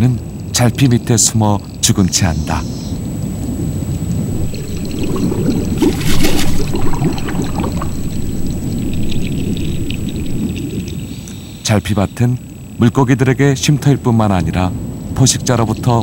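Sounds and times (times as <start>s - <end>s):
low rumbling underwater noise: 4.2s - 11.1s
water rushing burst: 4.3s - 11.0s.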